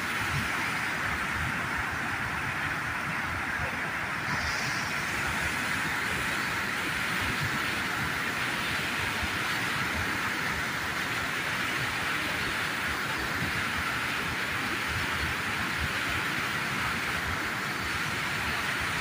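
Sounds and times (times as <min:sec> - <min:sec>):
water rushing over weir: 0:00.0 - 0:19.0.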